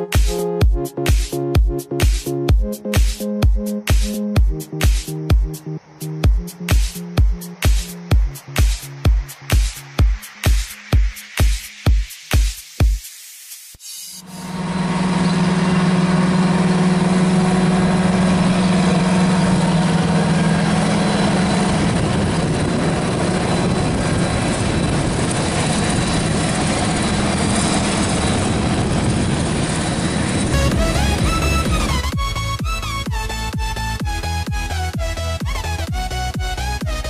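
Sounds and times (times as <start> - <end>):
diesel harvester engine humming: 14.2 - 37.0.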